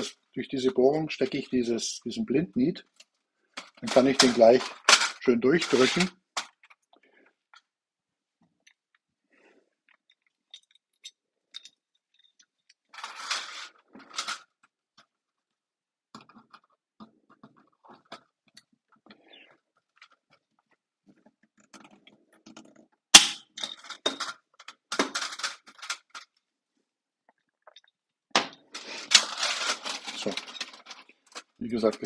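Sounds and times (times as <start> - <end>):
rivet snapping sharp crack: 23.2 - 23.5.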